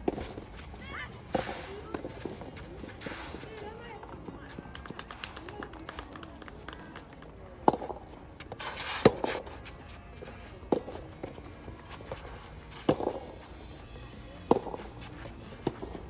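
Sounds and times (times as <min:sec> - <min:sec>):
shoes scuffing on court: 0:00.0 - 0:04.4, 0:08.4 - 0:13.6
tennis rackets hitting ball: 0:12.8 - 0:13.3, 0:14.4 - 0:16.0.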